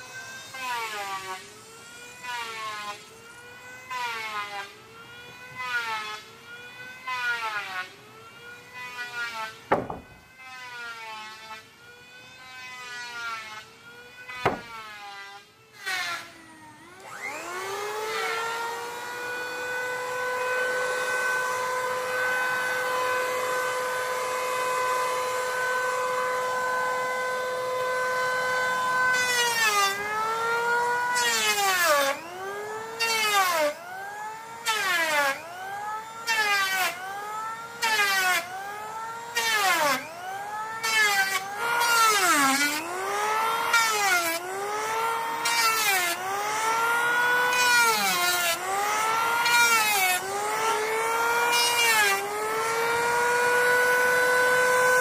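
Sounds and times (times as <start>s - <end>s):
power tool cutting wood: 0.0s - 55.0s
sharp knock: 9.7s - 10.2s, 14.4s - 14.8s.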